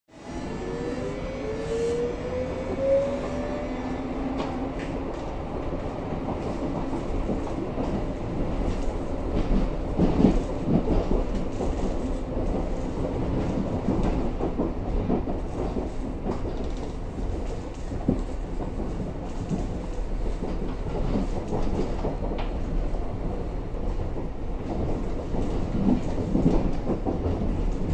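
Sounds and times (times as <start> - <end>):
train motor whine: 0.1 - 4.6
train running rumble: 0.2 - 27.9.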